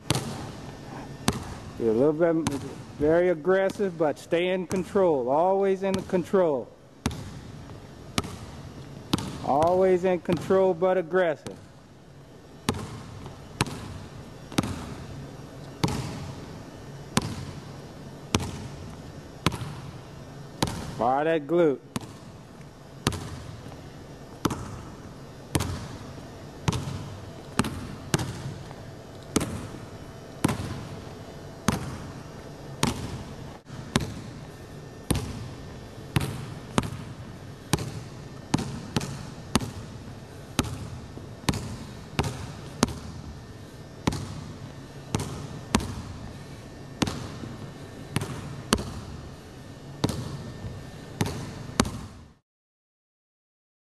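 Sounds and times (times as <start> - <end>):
basketball bouncing on hardwood floor: 0.1 - 0.6, 1.2 - 1.7, 7.0 - 7.5, 8.2 - 10.5, 12.7 - 15.1, 15.8 - 16.4, 17.2 - 17.6, 18.3 - 19.8, 20.6 - 21.0, 22.0 - 22.2, 23.0 - 23.8, 24.4 - 24.9, 25.5 - 26.0, 26.7 - 28.8, 29.4 - 29.8, 30.4 - 31.0, 31.7 - 32.2, 32.8 - 33.2, 33.9 - 34.3, 35.1 - 35.5, 37.7 - 39.9, 40.6 - 43.2, 44.0 - 44.5, 45.1 - 46.1, 47.0 - 47.4, 48.2 - 49.1, 50.0 - 52.2.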